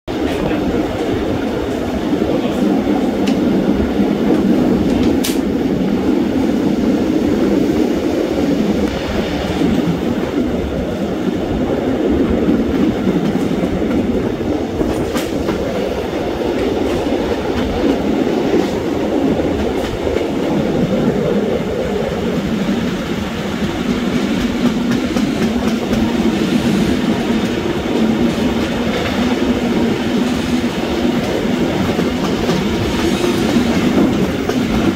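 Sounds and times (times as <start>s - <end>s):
wheels clicking over rail joints: 0.1s - 5.6s
train wheels rumbling on rails: 0.1s - 34.9s.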